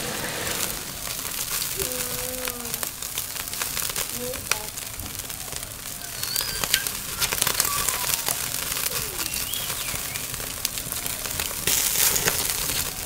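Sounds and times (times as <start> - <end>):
crackling and rustling: 0.0 - 13.0
faint bird whistles: 5.4 - 10.4.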